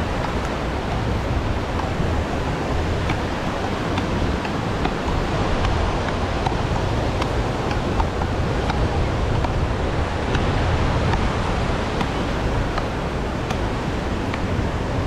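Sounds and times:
surf washing on shore: 0:00.0 - 0:15.0
wind rumbling on microphone: 0:00.0 - 0:15.0.

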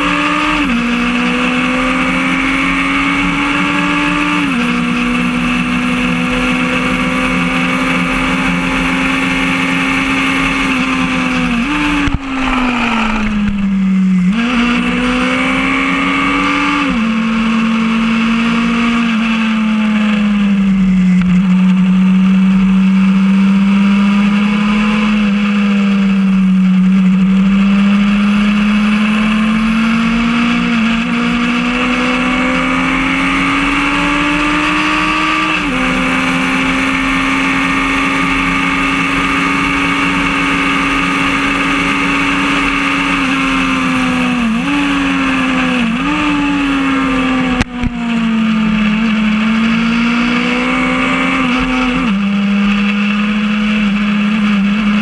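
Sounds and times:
motorcycle engine revving: 0:00.0 - 0:55.0
wind rushing: 0:10.6 - 0:16.0.

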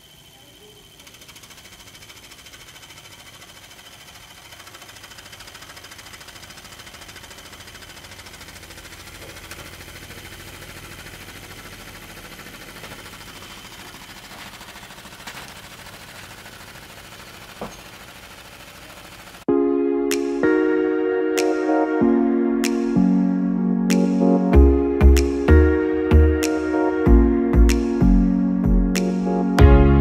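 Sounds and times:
small motor buzzing: 0:00.0 - 0:19.1.

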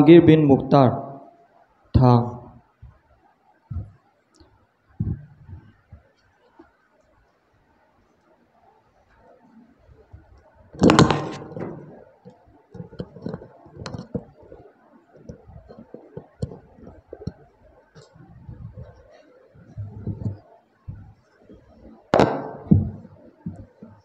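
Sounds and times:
loud ringing knock: 0:22.2 - 0:23.6.

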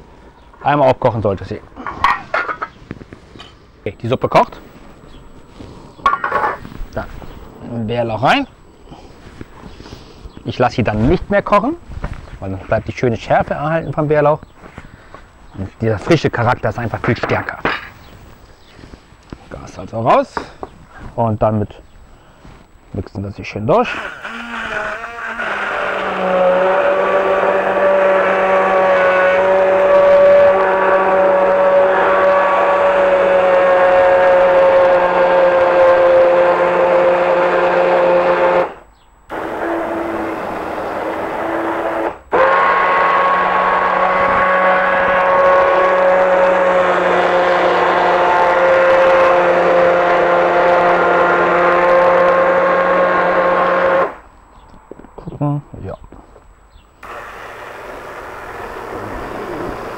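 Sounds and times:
immersion blender motor whine: 0:23.8 - 0:54.2, 0:57.0 - 0:59.9.

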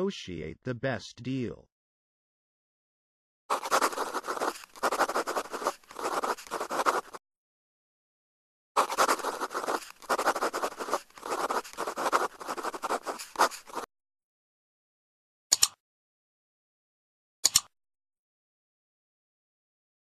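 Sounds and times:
pen scribbling: 0:03.5 - 0:07.2, 0:08.8 - 0:13.9.

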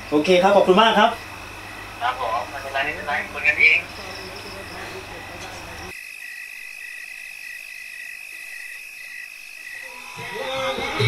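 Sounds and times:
insects chirring: 0:00.0 - 0:11.0
frog pulsing call: 0:01.0 - 0:10.5.

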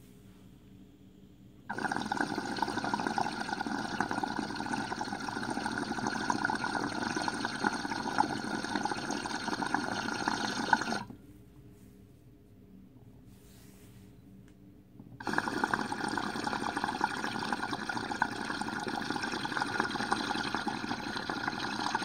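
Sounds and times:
water bubbling in glass pipe: 0:01.7 - 0:11.1, 0:15.2 - 0:22.0.

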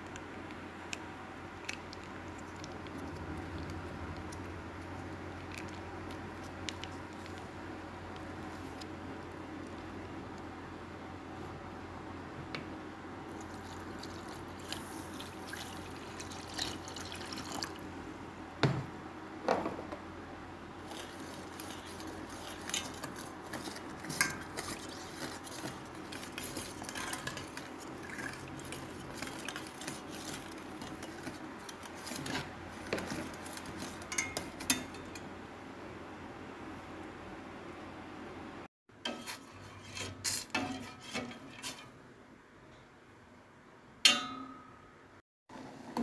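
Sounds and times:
liquid swishing: 0:13.3 - 0:17.8, 0:20.8 - 0:34.1
metal spoon clinking against pot: 0:34.1 - 0:35.3, 0:44.1 - 0:44.7.

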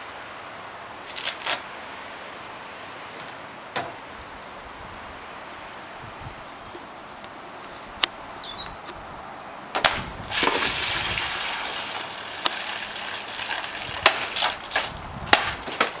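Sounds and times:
water splashing onto grass: 0:09.8 - 0:16.0
sword cutting plastic jug: 0:11.9 - 0:16.0.

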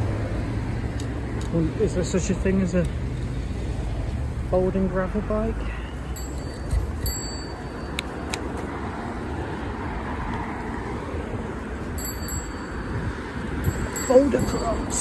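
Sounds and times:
road traffic: 0:00.0 - 0:15.0
bike clicks and rattles: 0:00.8 - 0:01.7, 0:06.2 - 0:08.6
wind on microphone: 0:10.9 - 0:15.0.

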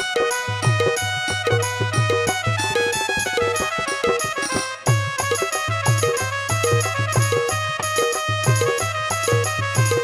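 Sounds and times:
keyboard melody: 0:00.0 - 0:10.0
hand drum strokes: 0:00.6 - 0:07.5.

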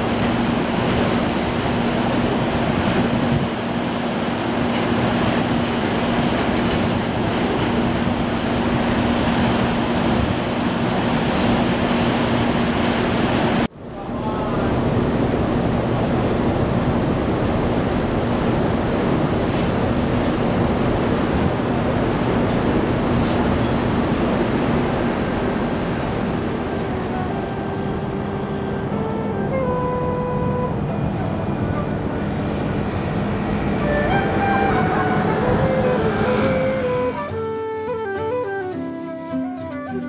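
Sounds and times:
low ship engine hum: 0:00.0 - 0:38.6
churning water: 0:00.0 - 0:39.2
wind rushing: 0:14.7 - 0:37.6.

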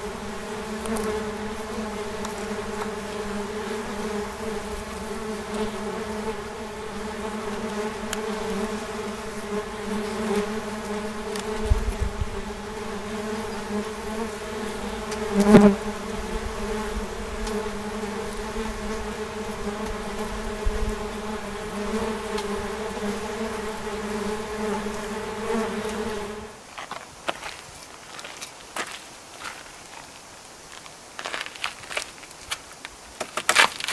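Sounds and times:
wasps buzzing: 0:00.0 - 0:26.6.

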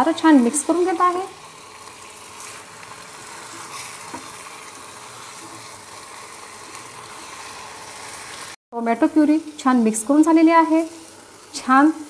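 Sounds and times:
meat and sauce sizzling in a pan: 0:00.0 - 0:12.0
wooden spatula stirring: 0:01.8 - 0:08.4.

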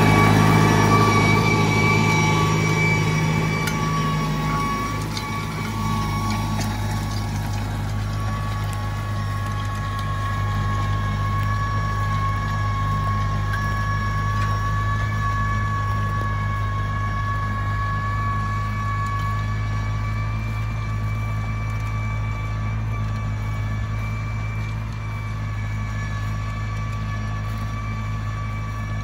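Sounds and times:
high whine: 0:00.0 - 0:29.0
tractor engine under load: 0:00.0 - 0:29.0.

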